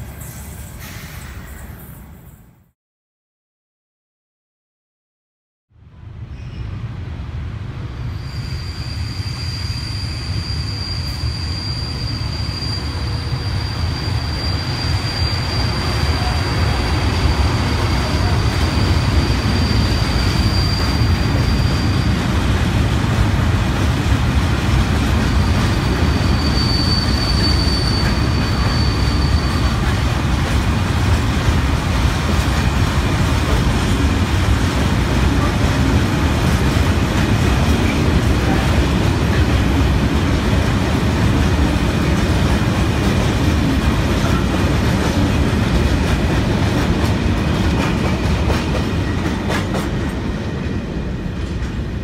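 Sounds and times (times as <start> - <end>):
train wheels rumbling on track: 0.0 - 2.4, 6.0 - 52.0
high wheel squeal: 8.2 - 22.3, 25.3 - 30.0.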